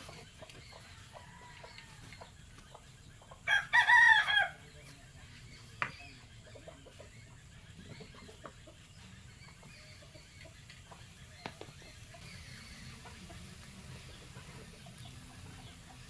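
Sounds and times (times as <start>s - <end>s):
rooster crowing: 3.5s - 4.6s.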